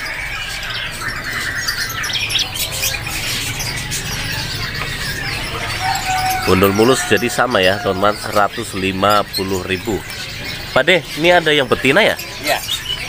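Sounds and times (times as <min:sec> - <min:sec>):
songbirds chirping: 0:00.0 - 0:13.0.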